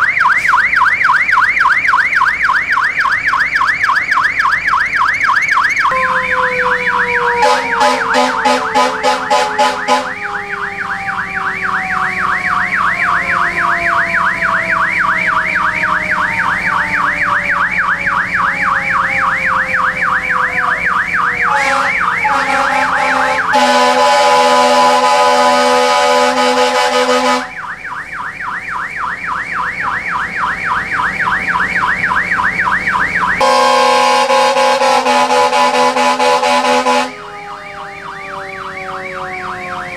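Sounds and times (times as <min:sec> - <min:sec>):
electronic siren yelping: 0:00.0 - 0:39.9
siren winding down in pitch: 0:00.0 - 0:39.9
fire truck air horn blasts: 0:05.9 - 0:13.9, 0:18.3 - 0:27.6, 0:33.4 - 0:37.4.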